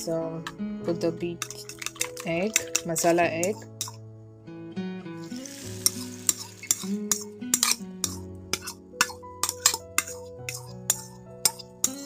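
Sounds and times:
background music with steady beat: 0.0s - 12.0s
egg hissing in hot oil: 5.2s - 7.7s.

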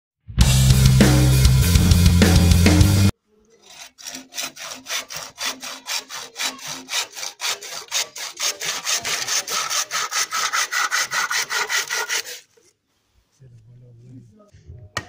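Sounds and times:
hand saw cutting bamboo: 3.5s - 12.7s.

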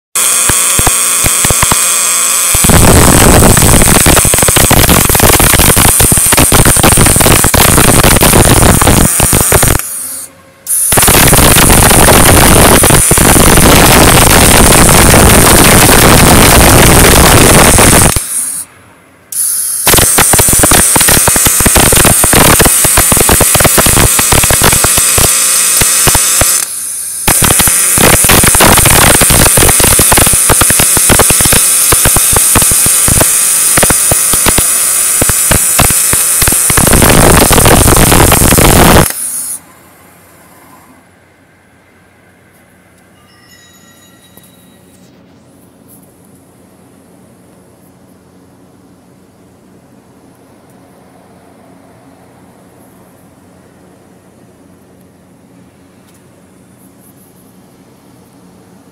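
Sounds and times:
welding arc crackling: 0.2s - 18.7s, 19.4s - 39.6s.

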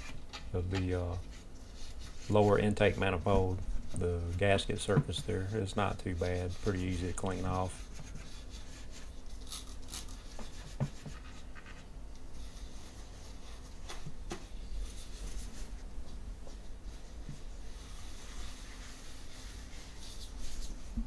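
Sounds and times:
low steady hum: 0.0s - 21.0s
towel wiping a metal surface: 0.8s - 9.3s, 16.4s - 21.0s.

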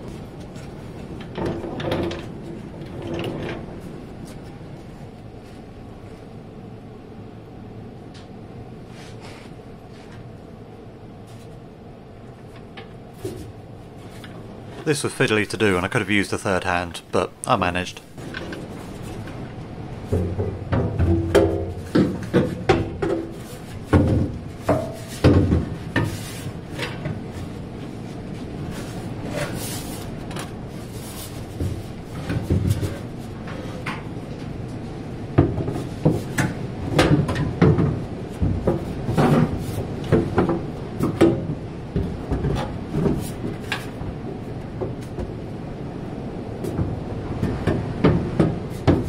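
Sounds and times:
metal knocks and clunks: 20.1s - 26.1s.

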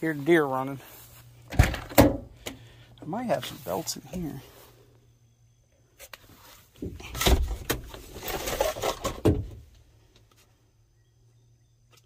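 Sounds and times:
hands rummaging through car parts: 6.0s - 9.7s.

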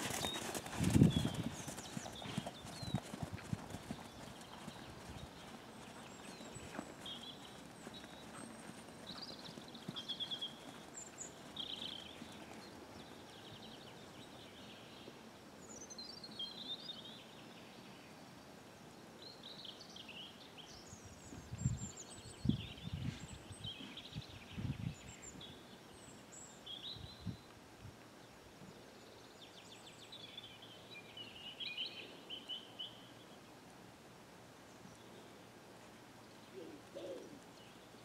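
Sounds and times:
horse hooves thudding on sand: 0.0s - 13.1s
birds chirping: 0.0s - 17.9s.

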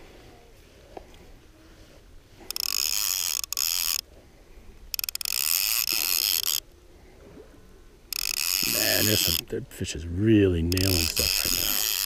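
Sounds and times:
fly reel ratchet buzzing: 2.4s - 4.0s, 4.9s - 6.6s, 8.1s - 9.4s, 10.7s - 12.0s.

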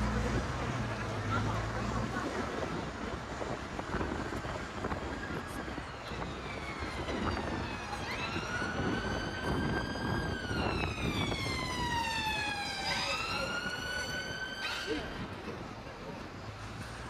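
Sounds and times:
street traffic: 0.0s - 17.0s
emergency siren wailing: 5.4s - 15.4s.

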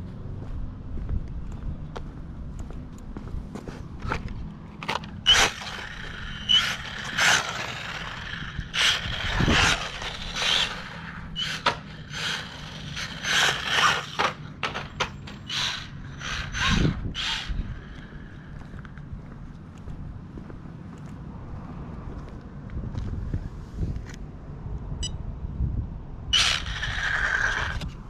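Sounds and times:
tyres scrabbling on asphalt: 3.5s - 19.6s, 26.4s - 28.0s
electric motor whining: 5.2s - 18.4s, 26.4s - 27.9s.

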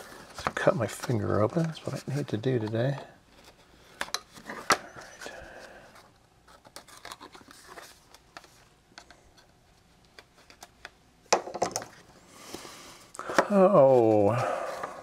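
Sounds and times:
plastic stencil crinkling: 0.0s - 11.0s.

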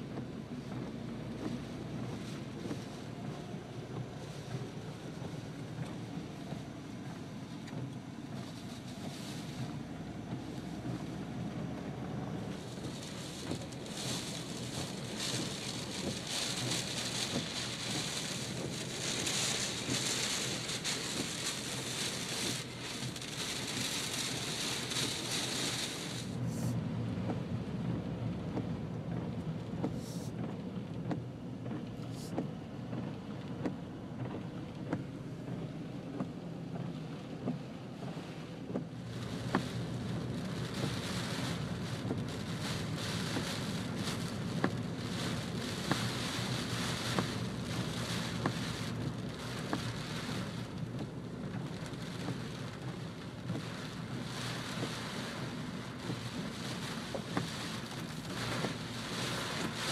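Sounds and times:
engine and tyres on wet road: 0.0s - 59.9s
heavy rain on car windshield: 0.0s - 59.9s
raindrops ticking: 12.5s - 26.4s.

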